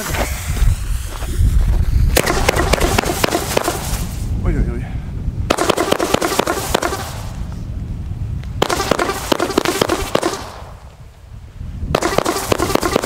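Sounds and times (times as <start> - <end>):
fireworks launch pops with crackle: 0.0 - 4.3, 5.5 - 7.6, 8.4 - 11.0, 11.9 - 13.0
wind rumble on microphone: 0.0 - 13.0.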